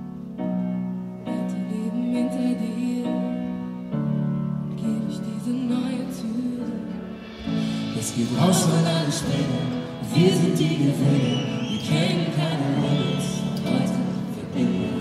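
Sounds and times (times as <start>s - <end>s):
drums: 0.0s - 15.0s
piano: 0.0s - 15.0s
woman singing: 1.3s - 3.7s, 4.7s - 7.2s
man singing: 7.6s - 15.0s.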